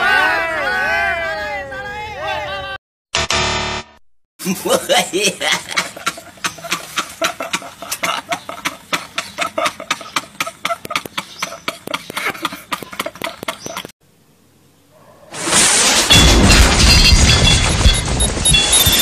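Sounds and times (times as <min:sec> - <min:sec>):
men laughing: 0:04.4 - 0:13.9.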